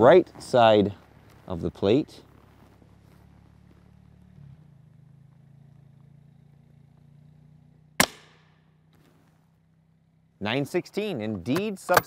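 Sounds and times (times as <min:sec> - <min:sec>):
suppressed rifle shot: 0:08.0 - 0:08.6.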